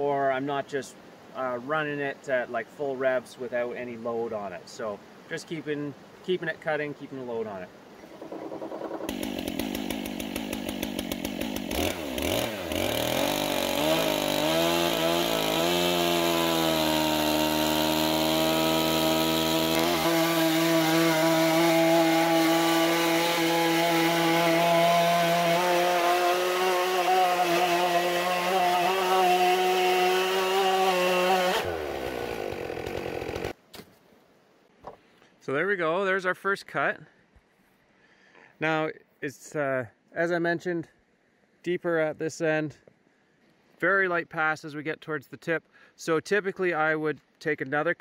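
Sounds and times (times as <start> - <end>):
chainsaw cutting through log: 8.2 - 33.6.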